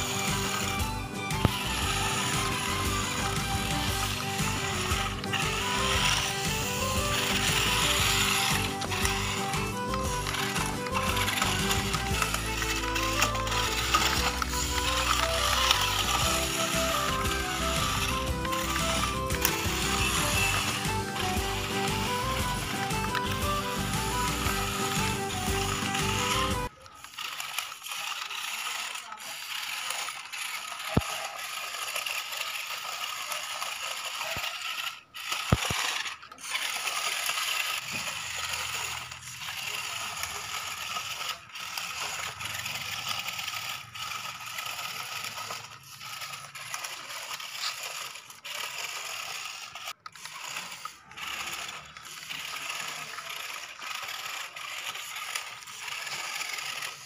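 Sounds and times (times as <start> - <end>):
toy truck motors whirring: 0.0 - 57.0.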